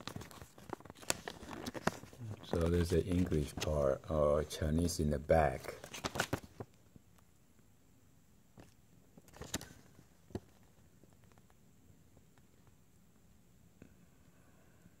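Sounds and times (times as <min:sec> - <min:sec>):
paper rustling: 0:00.0 - 0:04.1, 0:05.6 - 0:06.7, 0:08.6 - 0:11.4
faint room noise: 0:00.0 - 0:15.0.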